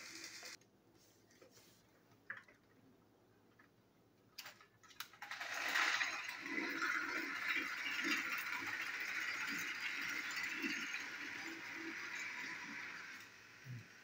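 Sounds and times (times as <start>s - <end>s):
toy train motors whirring: 0.0s - 0.6s, 5.0s - 14.0s.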